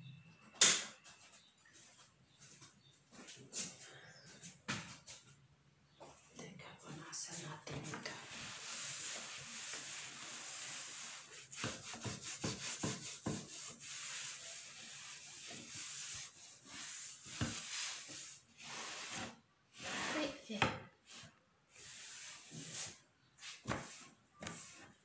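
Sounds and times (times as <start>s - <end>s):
scraping and rubbing: 7.2s - 20.4s.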